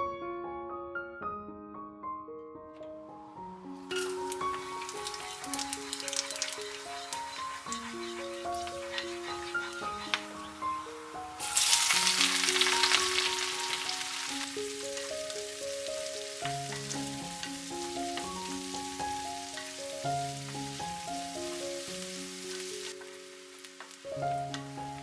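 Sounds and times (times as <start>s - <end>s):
music track with melody: 0.0s - 25.0s
onions sizzling in hot oil: 3.8s - 25.0s
wooden spatula stirring in wok: 4.0s - 10.4s.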